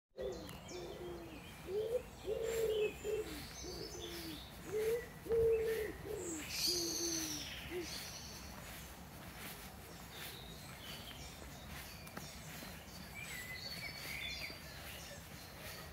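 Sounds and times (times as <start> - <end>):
pigeon cooing: 0.2 - 8.0
small birds chirping faintly: 0.2 - 15.9.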